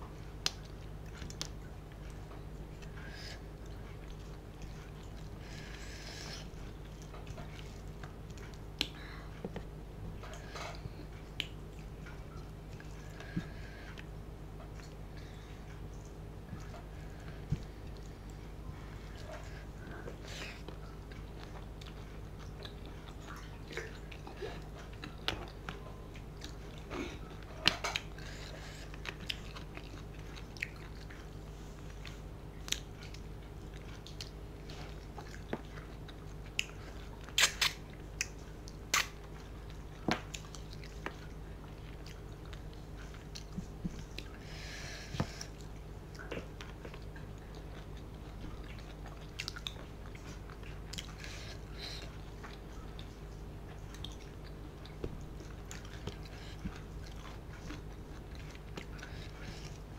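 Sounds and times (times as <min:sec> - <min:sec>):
steady low hum: 0:00.0 - 0:59.9
wet chewing: 0:00.3 - 0:59.9
lip smacks: 0:00.4 - 0:15.0, 0:15.6 - 0:59.9
sharp mouth clicks: 0:37.4 - 0:39.2.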